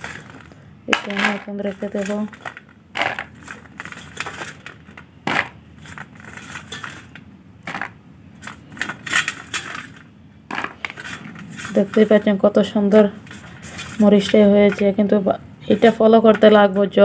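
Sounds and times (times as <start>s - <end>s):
chillies knocking on plastic box: 0.2s - 3.4s, 4.4s - 5.6s, 7.6s - 8.0s.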